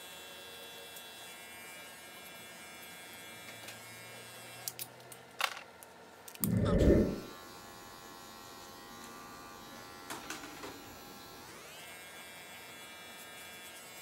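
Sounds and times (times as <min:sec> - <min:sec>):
electric hair clippers buzzing: 0:00.2 - 0:04.8, 0:08.6 - 0:14.0.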